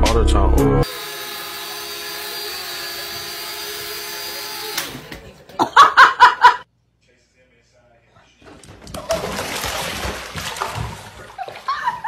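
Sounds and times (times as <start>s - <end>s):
toy drone motors buzzing: 0.8s - 4.9s.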